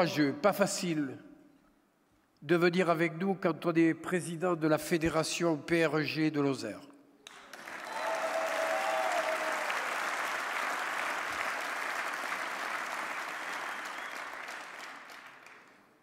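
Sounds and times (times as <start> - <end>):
crowd applauding: 7.3 - 16.0.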